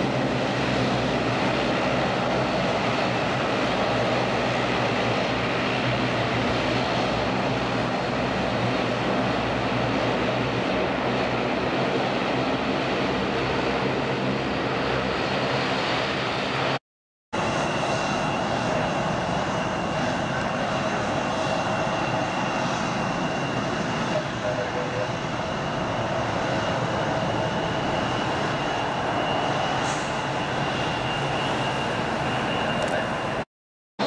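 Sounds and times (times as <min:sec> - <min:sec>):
jet engines whining: 0:00.0 - 0:16.8, 0:17.4 - 0:33.5
turboprop propeller drone: 0:17.4 - 0:33.4.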